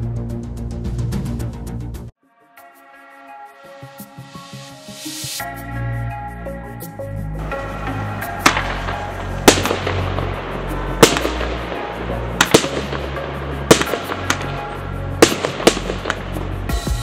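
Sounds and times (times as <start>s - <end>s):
electronic music with bass: 0.0s - 17.0s
fireworks shots cracking: 7.6s - 17.0s.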